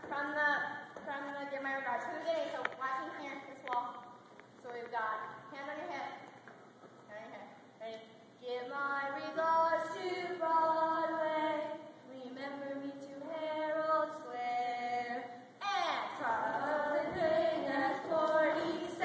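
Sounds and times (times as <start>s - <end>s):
choir-like voices singing: 9.4s - 15.4s, 16.0s - 19.0s.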